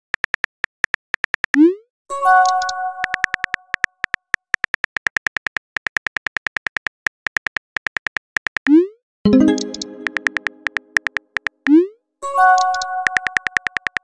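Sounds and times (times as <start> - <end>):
keyboard key clicks: 3.0 - 8.6, 9.3 - 11.6, 12.7 - 14.0
bell-like chime: 9.3 - 10.6.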